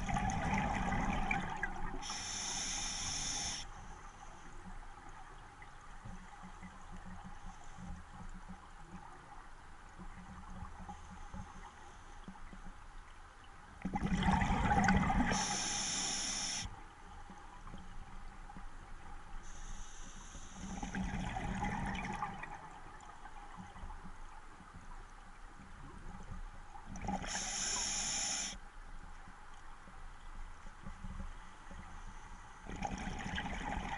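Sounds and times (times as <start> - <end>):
diver breathing through regulator: 2.0 - 3.7, 15.3 - 16.7, 19.4 - 20.9, 27.1 - 28.6.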